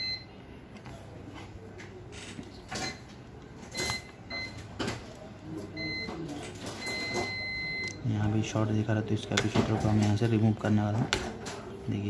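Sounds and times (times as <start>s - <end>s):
multimeter continuity beeps: 0.0s - 0.3s, 3.7s - 4.7s, 5.7s - 8.1s.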